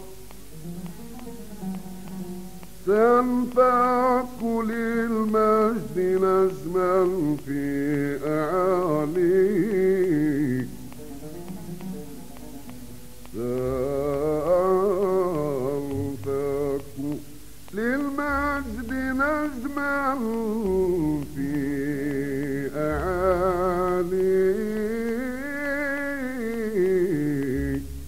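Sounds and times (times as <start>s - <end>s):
man singing ornamented phrases: 0.0s - 28.0s.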